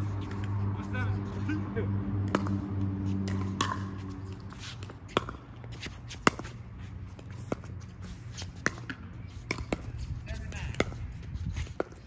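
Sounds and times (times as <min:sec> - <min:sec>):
footsteps scuffing on court: 0:04.0 - 0:12.0.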